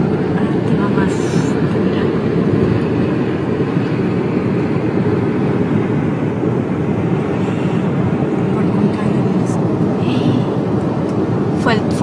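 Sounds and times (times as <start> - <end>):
wind roaring around car: 0.0 - 12.0.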